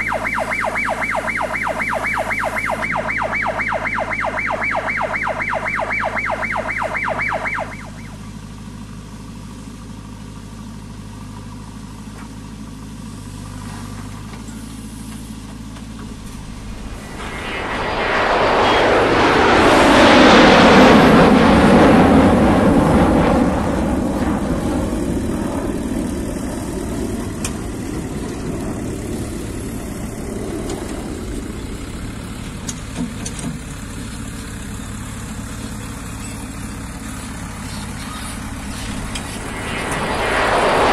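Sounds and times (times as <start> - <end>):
rapid electronic beeping: 0.0 - 8.2
diesel engine running: 0.0 - 40.9.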